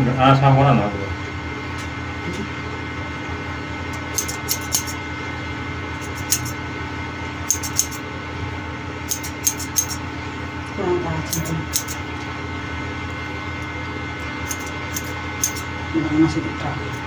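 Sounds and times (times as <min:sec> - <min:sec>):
steady background hum: 0:00.0 - 0:17.0
scissors snipping hair: 0:03.9 - 0:05.0, 0:06.0 - 0:06.6, 0:07.5 - 0:08.0, 0:09.1 - 0:10.0, 0:11.3 - 0:12.0, 0:14.4 - 0:15.7.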